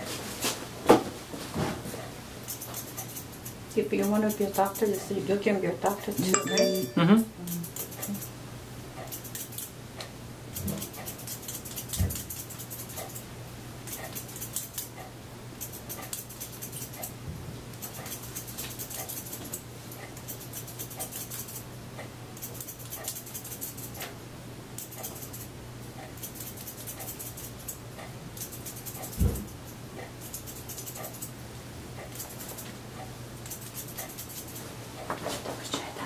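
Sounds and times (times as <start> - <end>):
scissors snipping hair: 2.4 - 5.0, 7.5 - 8.3, 9.0 - 13.2, 13.8 - 21.6, 22.4 - 24.1, 24.8 - 25.5, 26.1 - 31.4, 32.0 - 32.7, 33.4 - 34.6.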